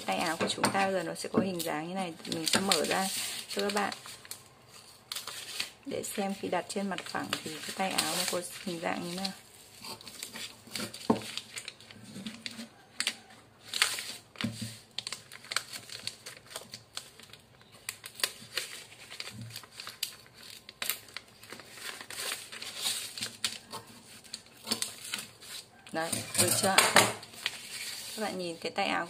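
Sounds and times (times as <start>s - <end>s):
shears cutting paper: 0.0s - 4.0s, 5.2s - 11.7s
paper crinkling: 0.0s - 29.0s.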